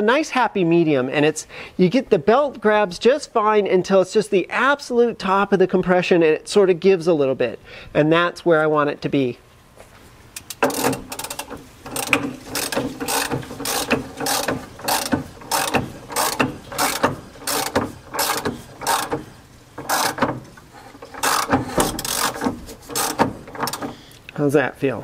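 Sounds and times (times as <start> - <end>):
ratchet wrench clicking: 10.4 - 24.0.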